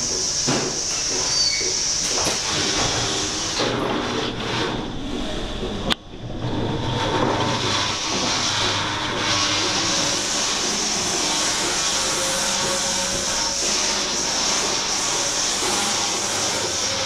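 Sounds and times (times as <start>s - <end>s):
milking robot hum with hiss: 7.5s - 17.0s.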